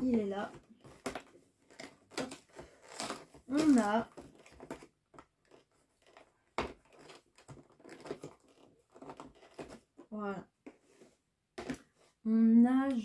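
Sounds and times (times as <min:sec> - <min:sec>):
cardboard packaging crinkling and tearing: 0:00.6 - 0:10.0.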